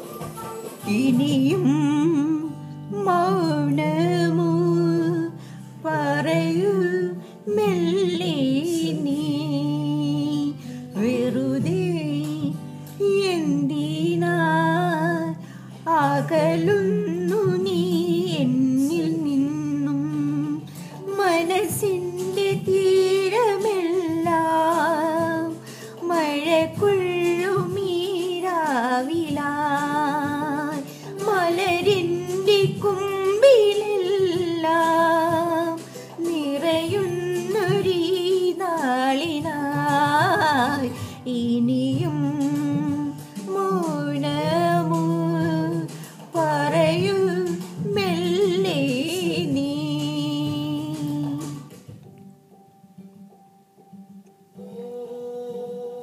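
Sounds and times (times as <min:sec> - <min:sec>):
woman singing with vibrato: 0:00.0 - 0:51.9, 0:54.6 - 0:56.0
recorded song accompaniment: 0:00.0 - 0:56.0.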